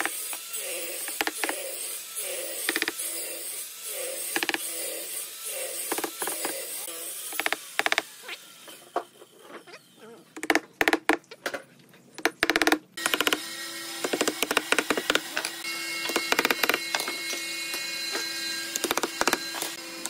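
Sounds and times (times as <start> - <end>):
wooden mallet tapping wooden blocks: 12.2 - 13.4.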